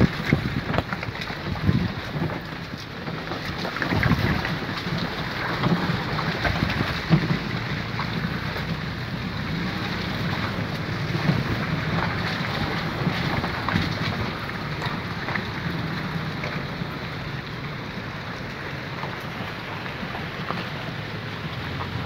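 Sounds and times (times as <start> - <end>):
low engine hum: 0.0 - 22.0
wind buffeting microphone: 0.0 - 22.0.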